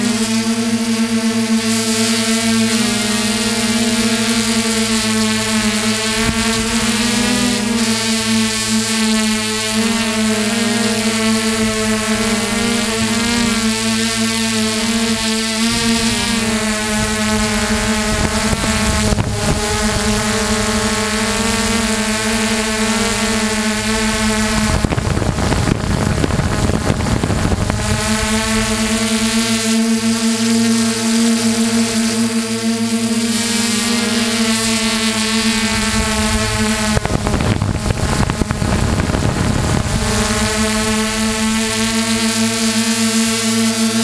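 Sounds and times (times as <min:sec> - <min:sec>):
drone motors humming: 0:00.0 - 0:44.0
wind rushing over microphone: 0:04.1 - 0:07.8, 0:11.4 - 0:30.1, 0:34.0 - 0:42.2.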